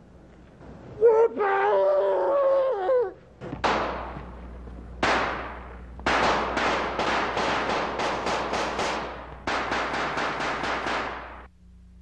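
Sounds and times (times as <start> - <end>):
man yelling: 1.0 - 3.2
rifle shots: 3.6 - 4.4, 5.0 - 11.5.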